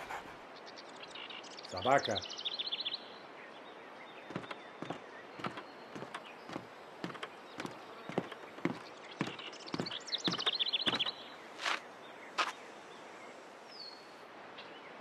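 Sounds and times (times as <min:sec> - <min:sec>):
footsteps: 0:04.3 - 0:11.8
small bird twittering: 0:04.3 - 0:11.8.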